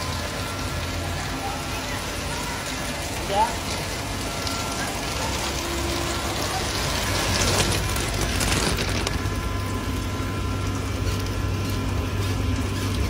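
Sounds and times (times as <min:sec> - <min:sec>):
rain pouring on car roof: 0:00.0 - 0:13.0
low hum: 0:04.0 - 0:13.0.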